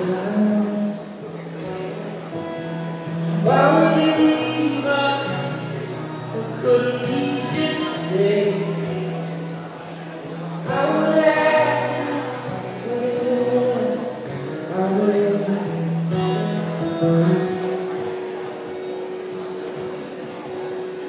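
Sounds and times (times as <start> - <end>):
man singing: 0.0 - 1.4, 3.1 - 9.4, 10.2 - 17.9
acoustic guitar: 0.0 - 21.0.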